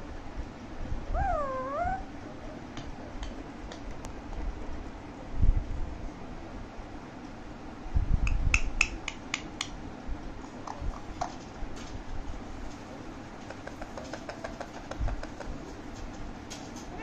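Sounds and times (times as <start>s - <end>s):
parakeet beak clicks: 8.2s - 9.8s, 13.4s - 15.6s.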